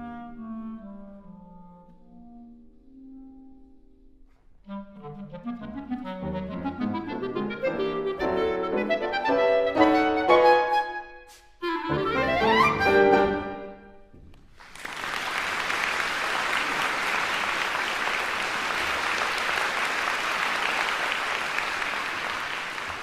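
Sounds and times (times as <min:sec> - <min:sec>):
clarinet and piano: 0:00.0 - 0:13.9
audience applauding: 0:14.5 - 0:23.0.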